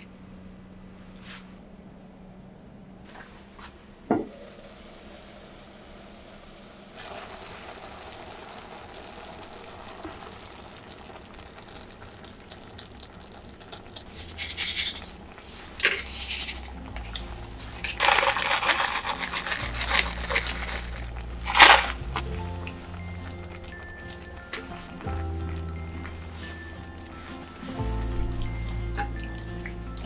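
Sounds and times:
dry seasonings tipped into pot: 17.8s - 22.4s.

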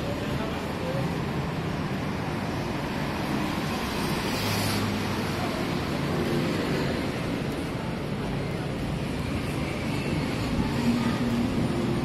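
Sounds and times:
city road traffic: 0.0s - 12.0s.

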